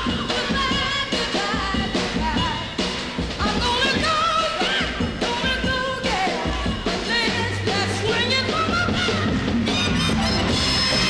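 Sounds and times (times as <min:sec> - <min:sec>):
steady bass line: 0:07.2 - 0:11.0.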